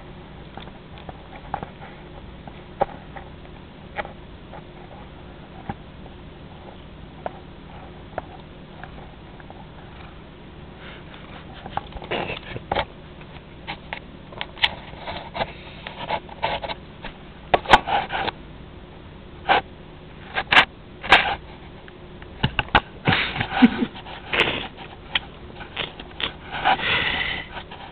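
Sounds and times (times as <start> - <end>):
cat sniffing: 23.1 - 27.9.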